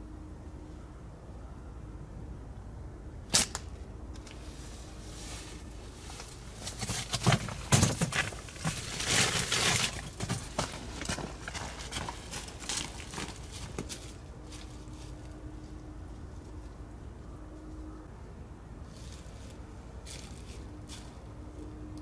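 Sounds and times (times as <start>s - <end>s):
slingshot snap: 3.3s - 3.8s
rustling in dry leaf litter: 4.4s - 15.7s, 18.8s - 21.3s.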